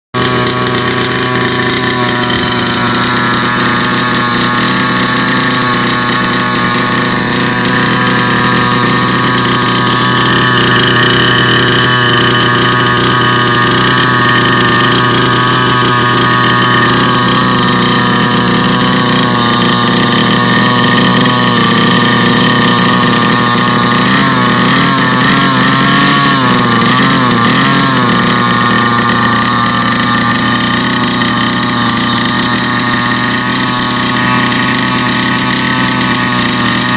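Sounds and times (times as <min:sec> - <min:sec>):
small two-stroke engine idling: 0:00.1 - 0:36.9.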